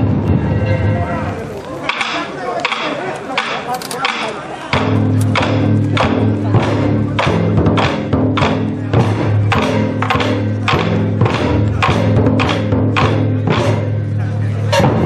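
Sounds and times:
taiko drums ensemble: 0.0s - 15.0s.

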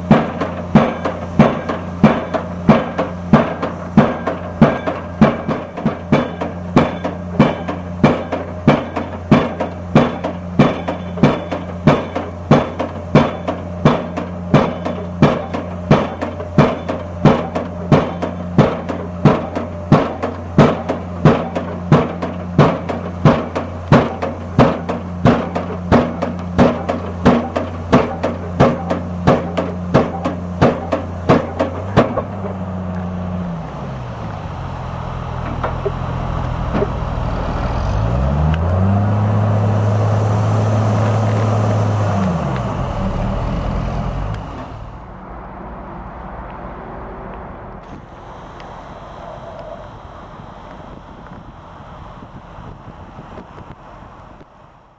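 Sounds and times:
pile driver hammer blows: 0.0s - 32.7s
engine running and revving: 0.0s - 54.5s.

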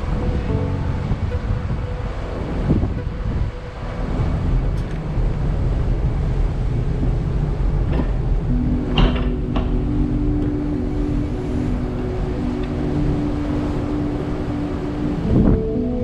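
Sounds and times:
ship engine rumble: 0.0s - 16.0s
steady hum: 0.0s - 16.0s
wind noise: 0.0s - 16.0s.

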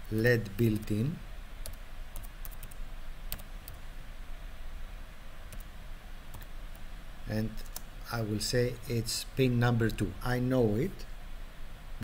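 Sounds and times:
faint low hum: 0.0s - 12.0s
typing on a computer keyboard: 1.6s - 3.8s.

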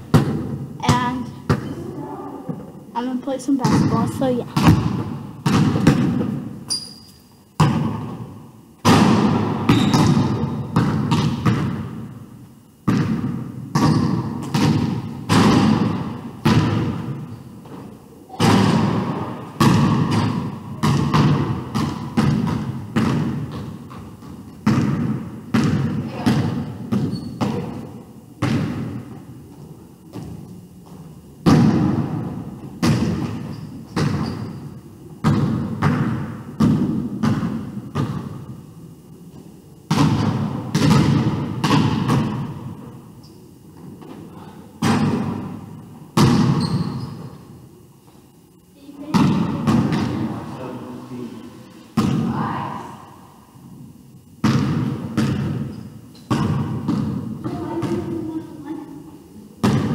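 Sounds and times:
basketball bouncing on wooden floor: 3.6s - 12.1s, 12.8s - 17.8s, 18.4s - 27.8s, 28.4s - 38.4s, 39.9s - 42.7s, 46.2s - 47.4s, 54.4s - 58.2s, 59.6s - 59.9s.

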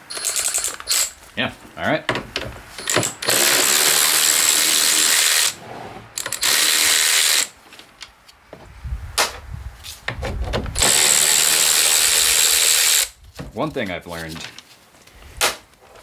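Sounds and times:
power drill spinning out bolts: 0.0s - 1.2s, 2.8s - 5.6s, 6.2s - 7.5s, 10.8s - 13.1s
handling sounds: 13.2s - 16.0s.

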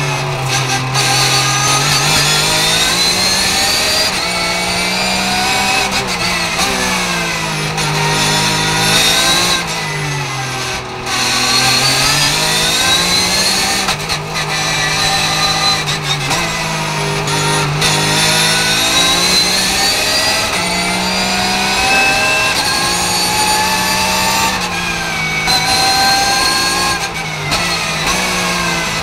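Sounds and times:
racing car engine accelerating: 0.0s - 29.0s.

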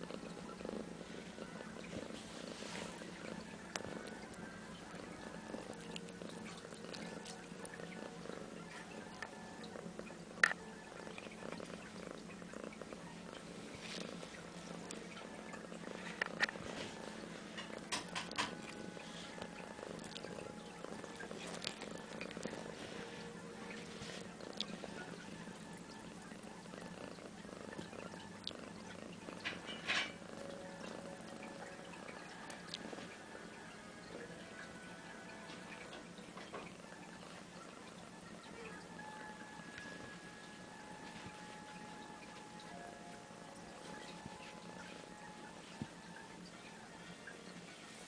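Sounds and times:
cat purring: 0.0s - 48.0s.

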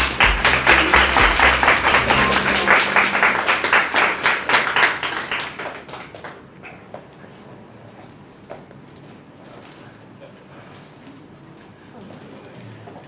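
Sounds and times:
group applauding: 0.0s - 7.0s.

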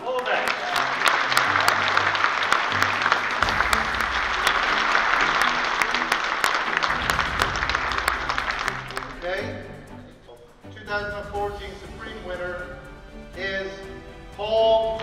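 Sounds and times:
audience applauding: 0.0s - 9.4s
background music with bass line: 0.7s - 15.0s.

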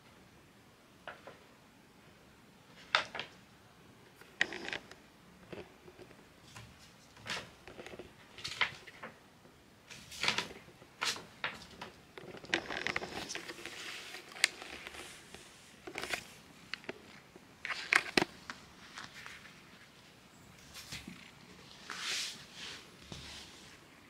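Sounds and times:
kitten rustling and tapping: 4.1s - 20.0s, 20.6s - 23.7s.

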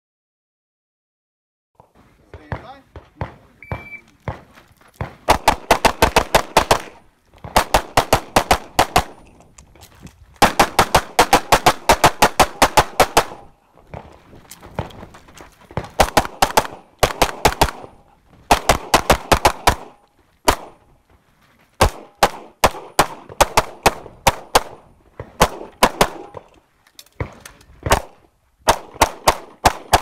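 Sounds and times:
rapid pistol shots: 5.0s - 9.2s, 10.4s - 14.1s, 15.8s - 20.8s, 21.8s - 26.4s, 27.8s - 30.0s.

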